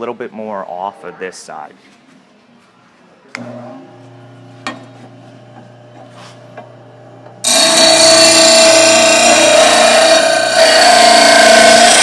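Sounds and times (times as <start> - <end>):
bench grinder humming: 3.4 - 12.0
metal blade grinding: 7.4 - 12.0.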